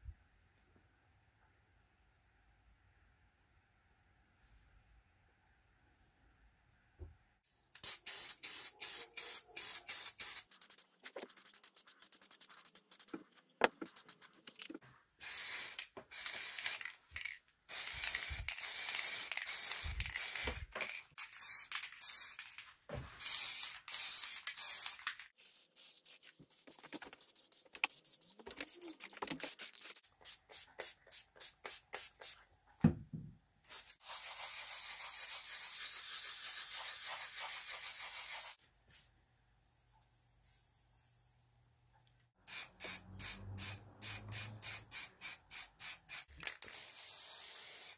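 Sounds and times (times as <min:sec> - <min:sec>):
aerosol spray paint hissing: 0:07.8 - 0:13.2, 0:15.2 - 0:16.9, 0:17.7 - 0:20.7, 0:21.4 - 0:22.5, 0:23.2 - 0:32.4, 0:33.8 - 0:38.6, 0:42.5 - 0:47.9
sandpaper rubbing by hand: 0:10.1 - 0:14.5, 0:33.8 - 0:38.6.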